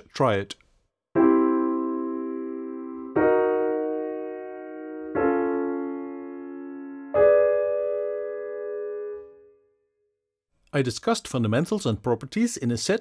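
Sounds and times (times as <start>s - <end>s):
piano chords ringing: 1.2s - 9.9s.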